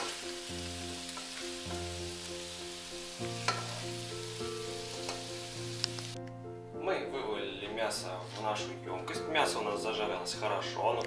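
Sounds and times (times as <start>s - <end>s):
steady hiss: 0.0s - 6.2s
soft background music: 0.0s - 11.0s
spatula scraping and knocking pan: 3.4s - 3.8s.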